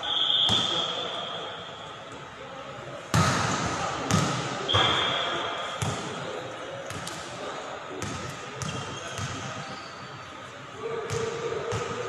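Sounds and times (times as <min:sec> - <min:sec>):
referee's whistle blast: 0:00.0 - 0:01.9, 0:04.7 - 0:05.5
ball struck with echoing smacks: 0:03.1 - 0:05.1.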